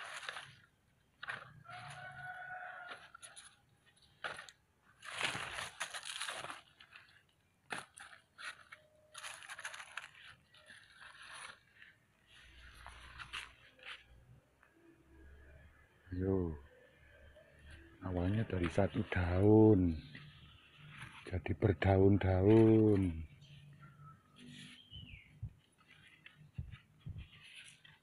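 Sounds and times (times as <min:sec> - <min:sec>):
crunching dry leaves: 0:00.0 - 0:14.2.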